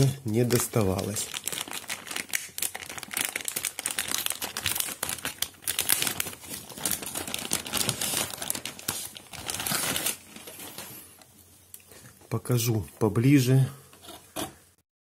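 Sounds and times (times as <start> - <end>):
plastic bag crinkling: 0.0 - 11.4.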